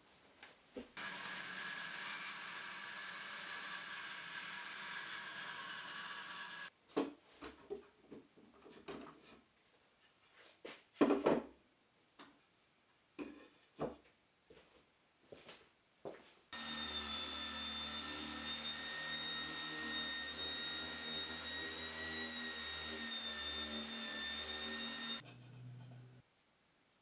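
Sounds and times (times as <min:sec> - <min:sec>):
bandsaw cutting wood: 0:01.0 - 0:06.7, 0:16.6 - 0:26.2.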